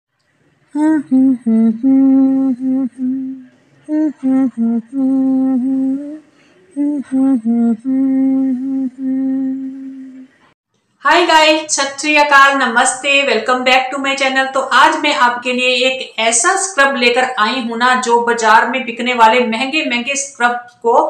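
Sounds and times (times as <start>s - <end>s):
person humming a tune: 0.7s - 10.5s.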